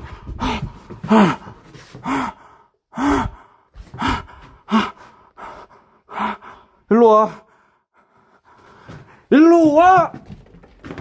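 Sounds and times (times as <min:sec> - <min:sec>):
man gasping: 0:00.0 - 0:09.3.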